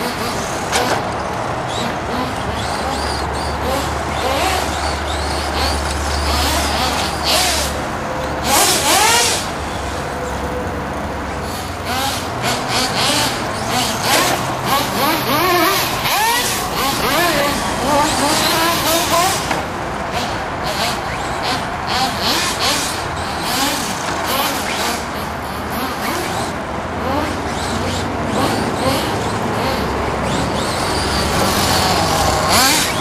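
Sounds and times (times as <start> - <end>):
electric motor whining: 0.0 - 33.0.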